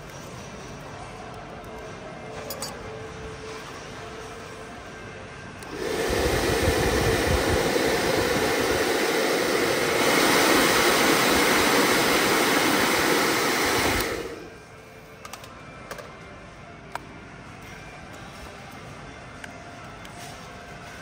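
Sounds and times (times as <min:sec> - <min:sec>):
rushing blowing noise: 0:05.7 - 0:14.5.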